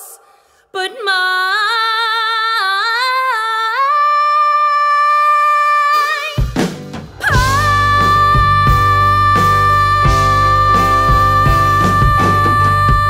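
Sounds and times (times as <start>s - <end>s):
band with drums and bass: 6.0s - 13.0s
woman singing jazz: 7.2s - 13.0s.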